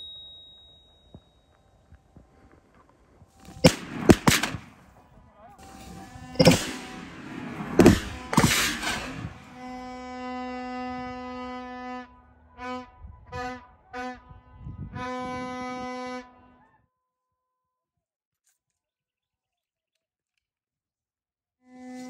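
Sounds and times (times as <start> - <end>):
hunting horn blasts: 5.5 - 16.9, 21.6 - 22.0.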